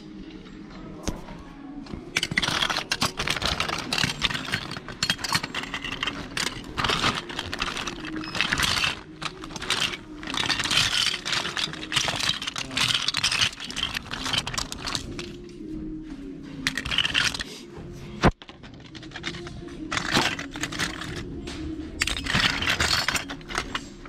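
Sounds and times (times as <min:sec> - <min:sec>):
plastic toys clattering: 0:01.9 - 0:15.5, 0:16.6 - 0:17.6, 0:18.2 - 0:24.0.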